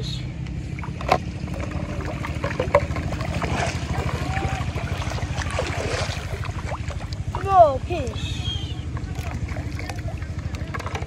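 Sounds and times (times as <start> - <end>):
small engine throbbing: 0.0 - 11.0
water splashing: 0.5 - 11.0.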